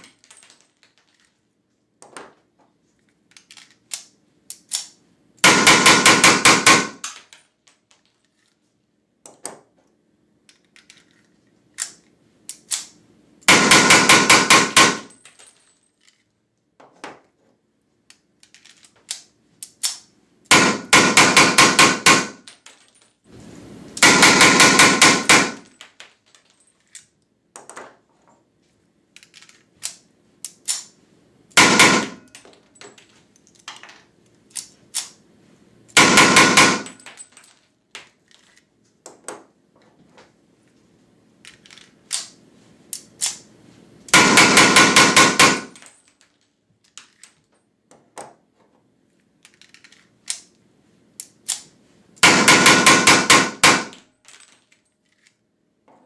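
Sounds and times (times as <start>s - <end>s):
metallic handling clicks: 3.0s - 5.0s, 10.5s - 13.0s, 25.7s - 27.3s, 32.3s - 35.2s, 49.4s - 50.6s, 51.2s - 51.7s, 54.2s - 55.4s
blank pistol shots: 5.4s - 7.1s, 20.5s - 22.4s, 24.0s - 25.6s, 31.6s - 32.3s, 36.0s - 37.0s, 44.2s - 45.8s, 52.2s - 54.0s.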